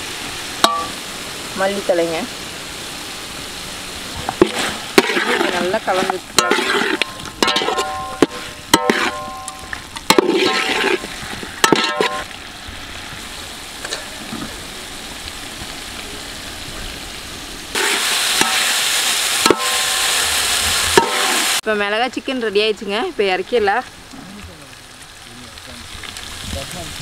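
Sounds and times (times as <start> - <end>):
frying sizzle: 0.0 - 27.0
metal ladle scraping a pot: 4.4 - 12.2.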